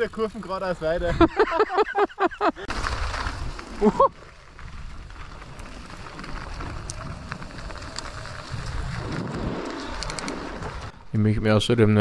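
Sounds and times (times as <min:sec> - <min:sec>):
bike clicks and rattles: 0:02.7 - 0:11.0
wind buffeting a microphone: 0:04.5 - 0:11.1.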